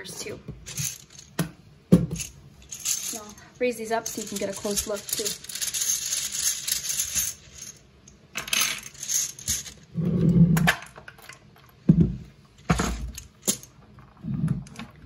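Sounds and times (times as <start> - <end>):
game tiles rattling in a tray: 0.7 - 1.4, 2.2 - 9.9.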